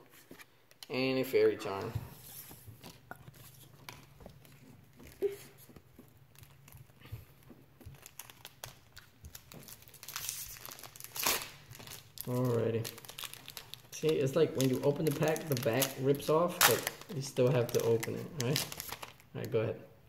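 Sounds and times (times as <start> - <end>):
foil wrapper crinkling and tearing: 6.2 - 19.3.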